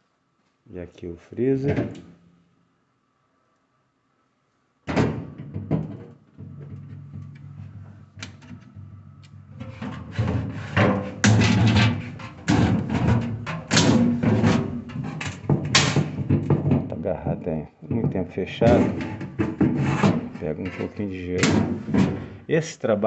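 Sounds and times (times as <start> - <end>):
sharp knocks: 9.6 - 17.0.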